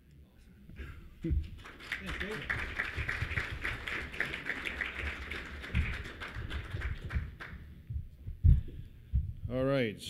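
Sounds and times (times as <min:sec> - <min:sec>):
audience applauding: 0:01.5 - 0:07.7
low thumps: 0:07.0 - 0:09.7.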